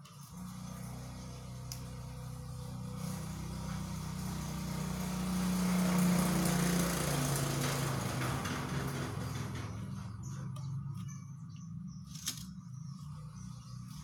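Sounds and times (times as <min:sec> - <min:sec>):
small engine running: 0:00.0 - 0:14.0.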